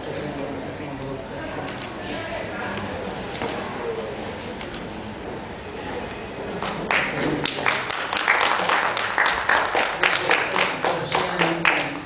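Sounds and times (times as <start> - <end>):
audience clapping: 6.6 - 12.0.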